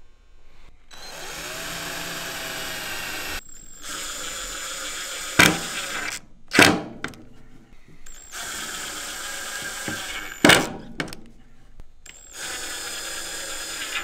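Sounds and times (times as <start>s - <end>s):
cordless drill motor: 0.9s - 6.2s, 8.1s - 10.4s, 12.1s - 14.0s.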